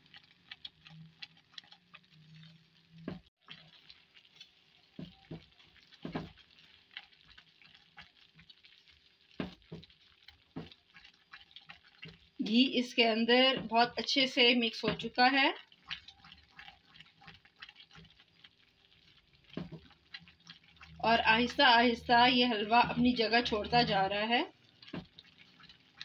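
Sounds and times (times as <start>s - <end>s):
faint frying sizzle: 0.0s - 26.0s
spatula scraping pan: 9.4s - 12.6s.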